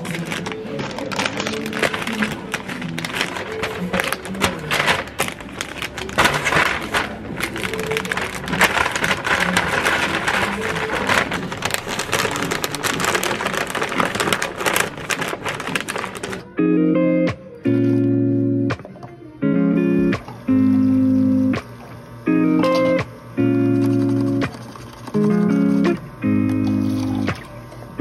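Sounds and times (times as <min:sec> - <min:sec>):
cellophane wrappers crinkling: 0:00.0 - 0:16.5, 0:23.7 - 0:27.5
paper bag rustling: 0:00.0 - 0:16.5, 0:23.7 - 0:27.5
soft background music: 0:15.8 - 0:24.6.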